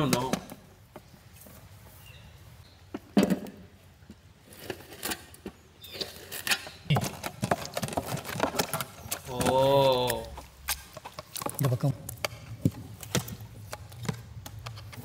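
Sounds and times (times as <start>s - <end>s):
masher squishing fruit in pot: 5.9s - 15.0s.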